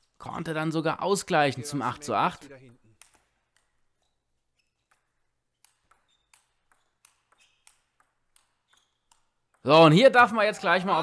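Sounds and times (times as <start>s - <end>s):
table tennis ball clicking: 2.7s - 9.7s.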